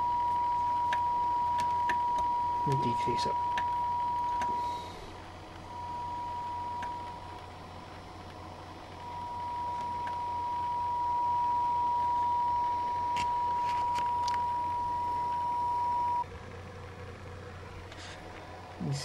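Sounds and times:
steady pure tone: 0:00.0 - 0:19.0.

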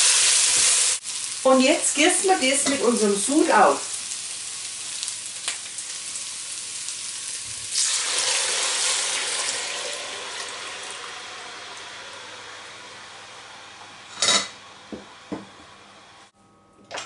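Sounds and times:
vegetables sizzling in hot fat: 0:00.0 - 0:16.2
liquid poured into hot pan hissing: 0:05.8 - 0:13.5.

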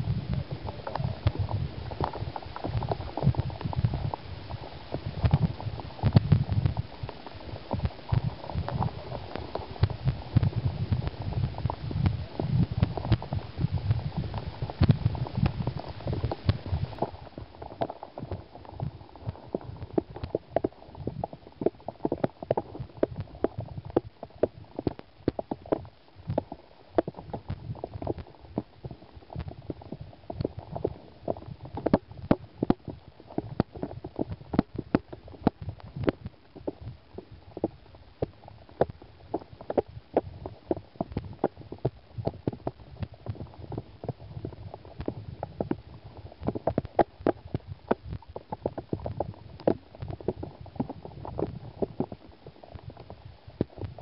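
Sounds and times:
underwater clicks and knocks: 0:00.0 - 0:54.0
underwater stream rush: 0:00.0 - 0:54.0.

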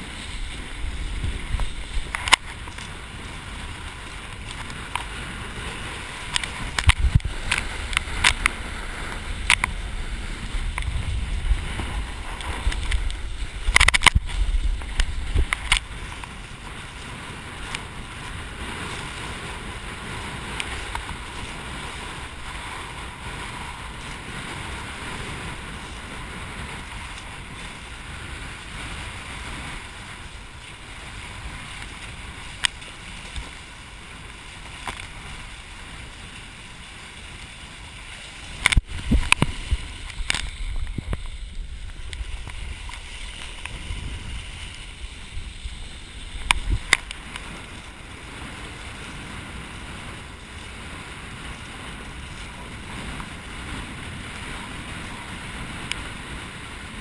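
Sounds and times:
sharp splashes and knocks: 0:00.0 - 0:03.0, 0:04.0 - 0:19.5, 0:38.1 - 0:48.0
water rushing: 0:00.0 - 0:57.0
wind noise: 0:00.0 - 0:57.0.

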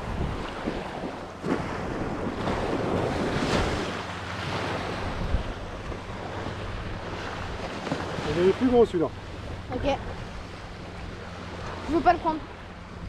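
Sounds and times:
surf washing onto beach: 0:00.0 - 0:10.2
wind buffeting microphone: 0:00.0 - 0:13.0.

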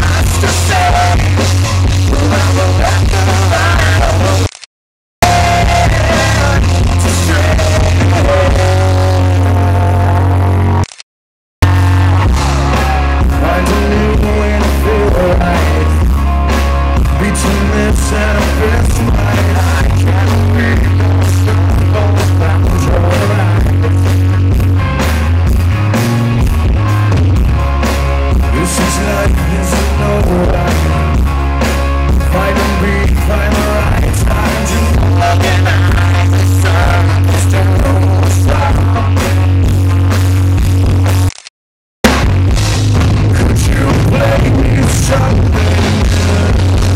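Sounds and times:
man singing: 0:00.0 - 0:04.5, 0:05.2 - 0:10.2, 0:12.1 - 0:16.0, 0:17.0 - 0:24.2, 0:28.5 - 0:31.2, 0:32.2 - 0:39.3, 0:43.3 - 0:46.9
live rock band playing: 0:00.0 - 0:04.6, 0:05.2 - 0:10.8, 0:11.6 - 0:41.4, 0:42.0 - 0:46.9.

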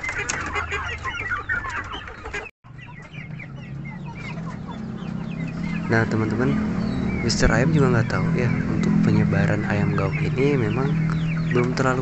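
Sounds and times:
chicks peeping and clucking: 0:00.0 - 0:12.0.

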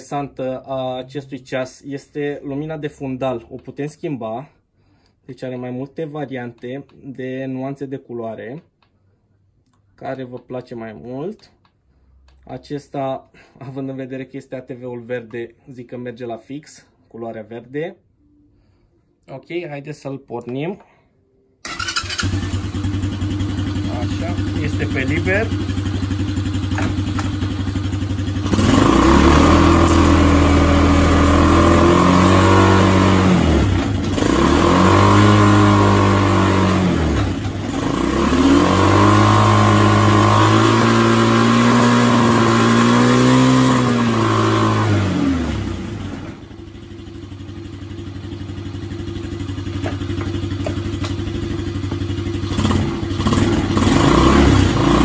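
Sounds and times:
quad bike engine revving: 0:21.7 - 0:55.0.

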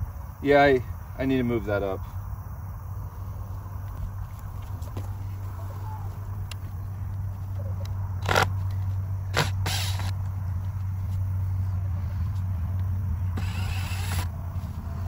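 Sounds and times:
steady low rumble: 0:02.0 - 0:15.0
cordless drill driving screws: 0:09.3 - 0:10.1, 0:13.4 - 0:14.3.

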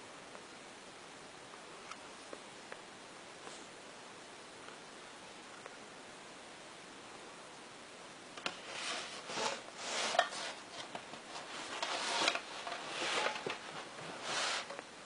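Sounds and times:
rubbing and scraping: 0:08.4 - 0:14.8.

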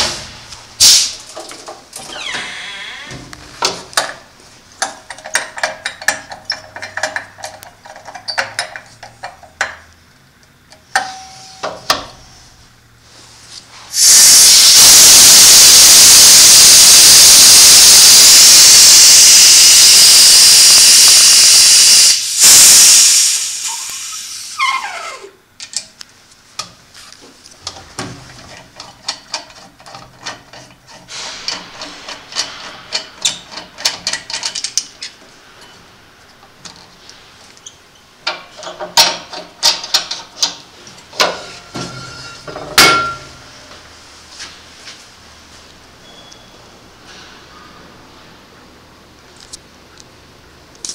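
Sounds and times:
high-pressure air venting hiss: 0:00.0 - 0:01.2, 0:13.7 - 0:25.3, 0:31.1 - 0:32.1
metal clicks and knocks: 0:04.8 - 0:09.9, 0:27.6 - 0:35.2.

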